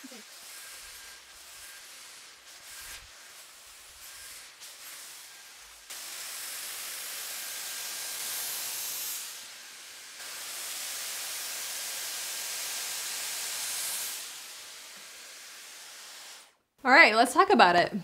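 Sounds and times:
hair styler blowing air: 0.0s - 16.6s.

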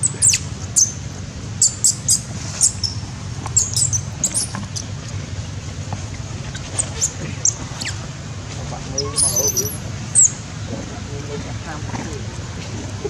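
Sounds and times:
baby monkey squeaking: 0.0s - 1.0s, 1.6s - 3.0s, 3.6s - 4.9s, 6.5s - 8.0s, 8.9s - 10.5s
steady low hum: 0.0s - 13.0s.

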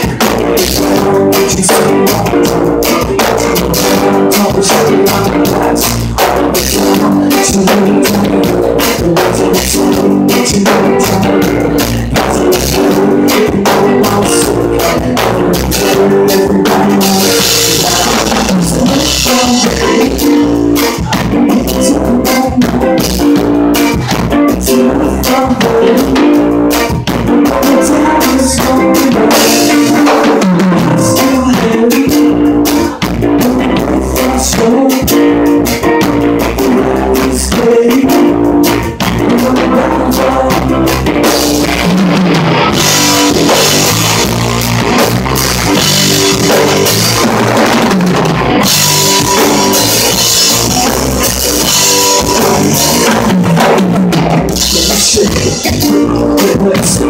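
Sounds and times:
bass lines: 0.0s - 57.0s
drum kit: 0.0s - 57.0s
electric guitar: 0.0s - 57.0s.

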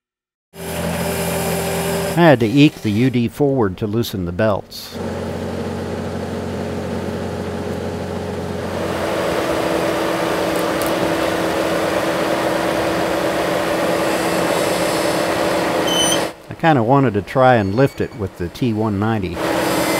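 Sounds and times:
loader engine with whine: 0.6s - 3.0s, 5.0s - 19.9s
engine idling: 5.0s - 16.5s.

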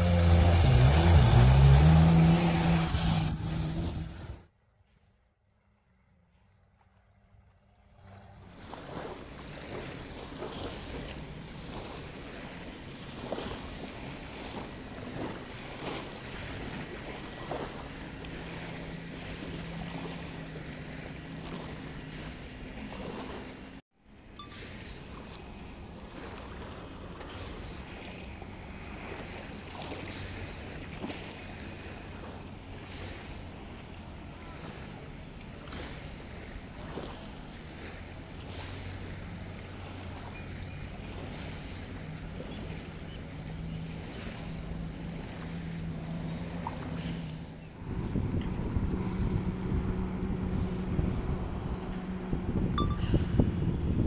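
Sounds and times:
jet ski engine idling: 0.0s - 4.4s, 8.5s - 23.8s, 25.0s - 54.0s
small waves lapping and splashing: 0.0s - 4.5s, 6.7s - 54.0s
wind on microphone: 47.8s - 54.0s.

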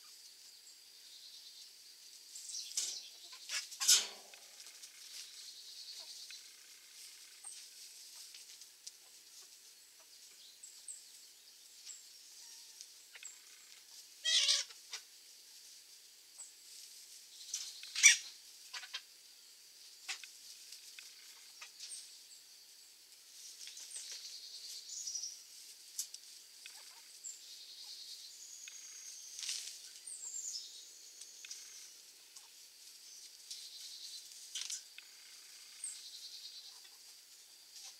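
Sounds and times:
chickens pecking and scratching: 6.9s - 10.9s, 23.3s - 24.8s.

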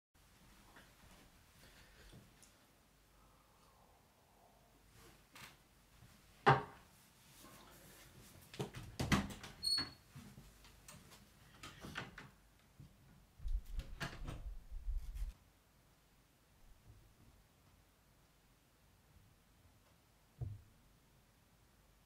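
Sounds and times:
shuffling footsteps: 13.4s - 15.4s.

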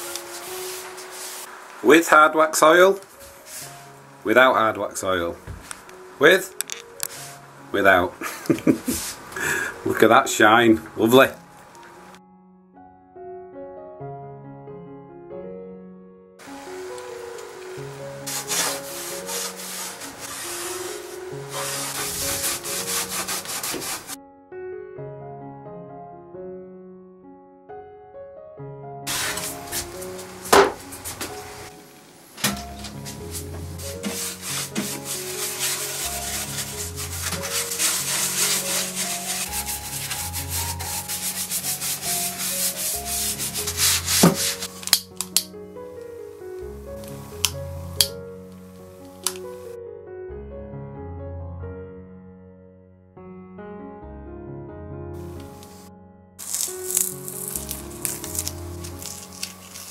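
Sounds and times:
soft piano music: 0.0s - 59.9s
bristle brush scratching on wood: 0.1s - 1.5s, 3.4s - 3.8s, 7.1s - 7.4s, 18.2s - 24.2s, 29.1s - 31.7s, 32.9s - 44.8s, 56.4s - 59.9s
cloth rubbing wax into wood: 0.1s - 1.6s, 18.2s - 24.2s, 29.1s - 31.7s, 32.8s - 44.8s, 56.4s - 59.9s.

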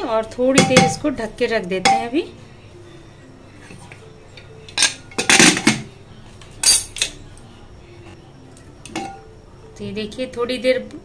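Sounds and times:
metal clattering on pressure cooker: 0.6s - 1.1s, 4.8s - 5.9s.

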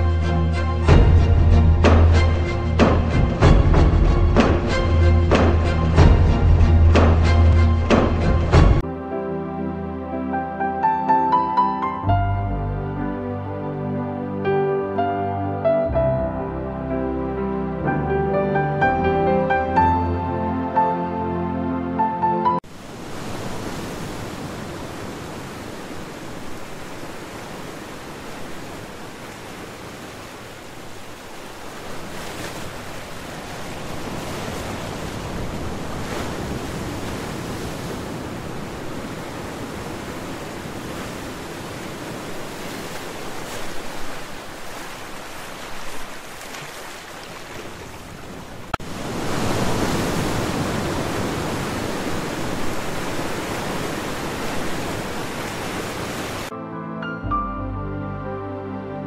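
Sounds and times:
sea surf rushing: 0.0s - 59.0s.

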